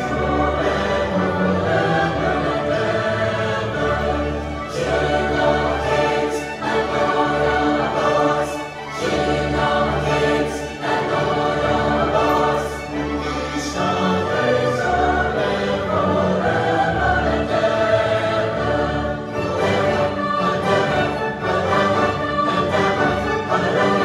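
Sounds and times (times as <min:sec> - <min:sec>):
choir singing: 0:00.0 - 0:24.0
string orchestra: 0:00.0 - 0:24.0.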